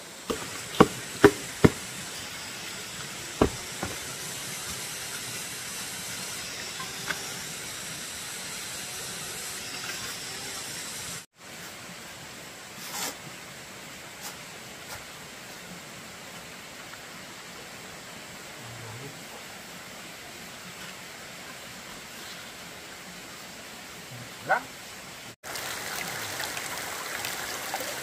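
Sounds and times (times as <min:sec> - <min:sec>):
steady hiss: 0:00.0 - 0:28.0
sharp knocks: 0:00.3 - 0:01.9, 0:03.4 - 0:04.0.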